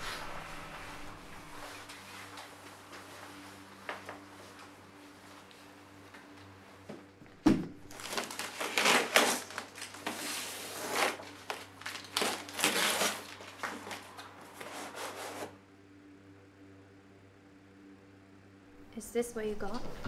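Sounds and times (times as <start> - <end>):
cardboard flaps pulled open: 7.9 - 15.5
tape tearing off cardboard: 7.9 - 15.6.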